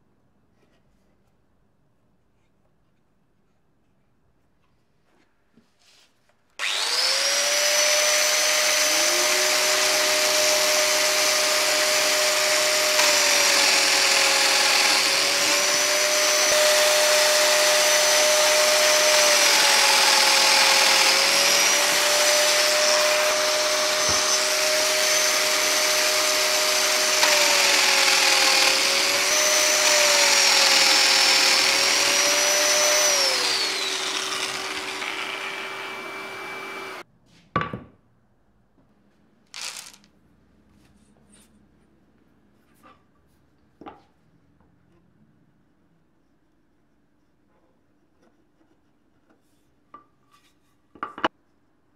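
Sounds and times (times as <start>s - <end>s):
dust extractor running: 6.6s - 37.0s, 39.6s - 40.0s
joiner motor running: 6.6s - 37.0s, 39.6s - 40.1s.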